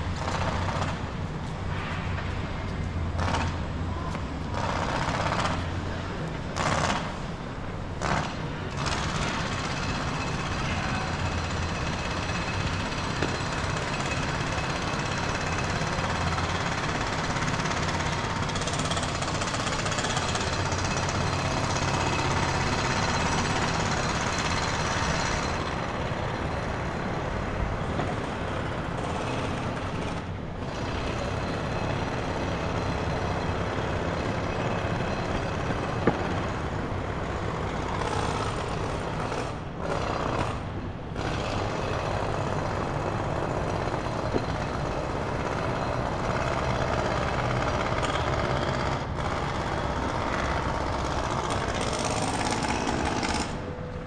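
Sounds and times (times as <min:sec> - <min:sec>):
jackhammer pounding: 0:00.0 - 0:01.2, 0:03.2 - 0:03.7, 0:04.4 - 0:05.8, 0:06.6 - 0:07.2, 0:08.0 - 0:54.0
city street traffic: 0:00.0 - 0:54.0.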